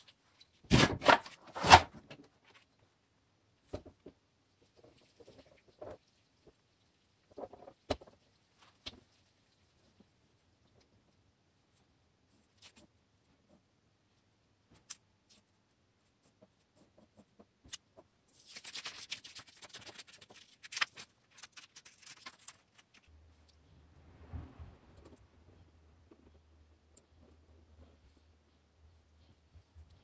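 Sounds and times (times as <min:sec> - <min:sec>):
paper rustling: 0:16.2 - 0:23.1
low steady hum: 0:22.8 - 0:30.0.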